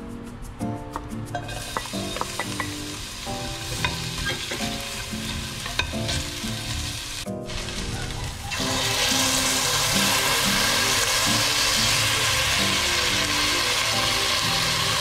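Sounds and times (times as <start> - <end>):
onions sizzling in hot oil: 1.3 - 15.0
spatula ticking against pot: 1.6 - 2.8.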